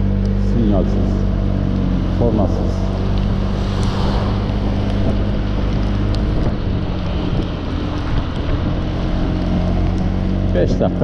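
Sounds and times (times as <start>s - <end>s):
scooter engine hum: 0.0s - 11.0s
wind rushing over microphone: 2.6s - 10.4s
tyres hissing on wet road: 2.9s - 10.4s.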